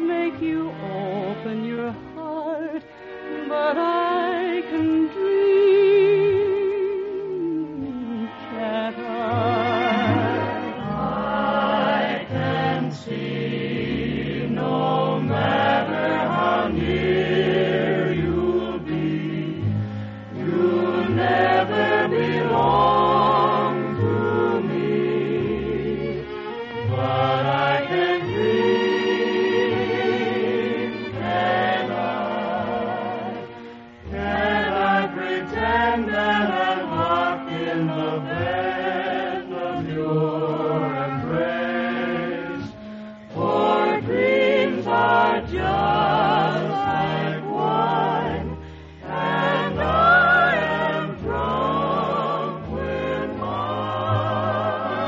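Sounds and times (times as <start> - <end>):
choir singing with orchestra: 0.0 - 55.0.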